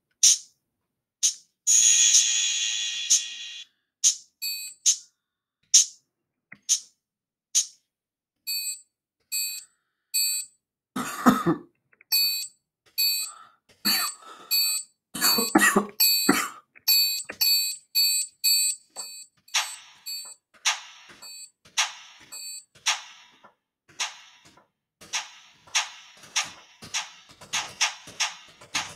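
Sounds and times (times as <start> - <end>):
drum machine shaker hits: 19.5 - 28.9.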